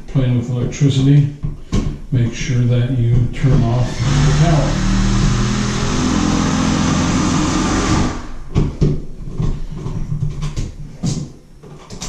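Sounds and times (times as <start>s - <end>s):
machine hum with low drone: 3.5s - 8.6s.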